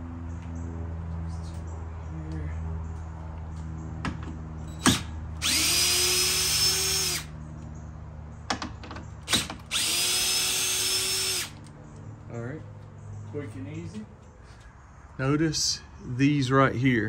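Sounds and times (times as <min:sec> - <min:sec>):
cordless drill whining: 0:04.8 - 0:07.3, 0:09.3 - 0:11.6.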